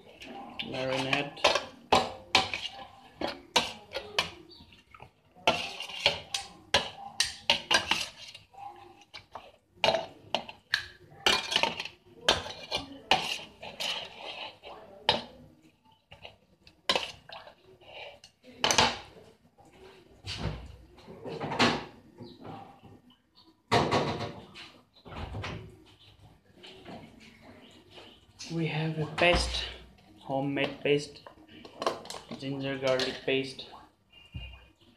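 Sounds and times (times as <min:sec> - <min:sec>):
cutlery clinking against a dish: 0:09.0 - 0:14.1.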